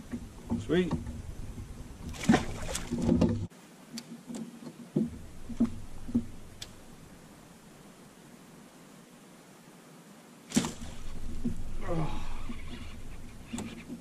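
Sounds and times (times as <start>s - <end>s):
faint hiss: 3.5s - 14.0s
light ticks: 5.6s - 6.8s.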